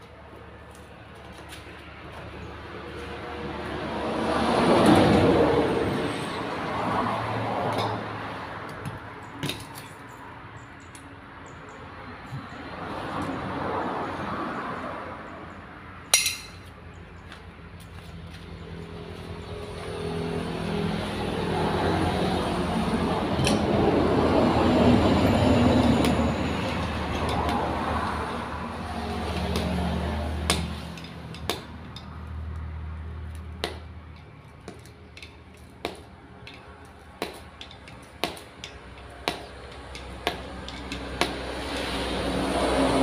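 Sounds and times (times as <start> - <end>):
metal clicks and clanks: 30.5 - 32.2, 33.6 - 42.0.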